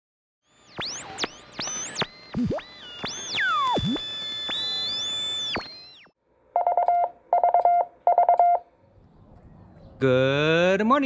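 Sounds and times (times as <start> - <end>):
electronic tones sweeping: 0.5 - 8.6
rapid beeps: 0.7 - 8.6.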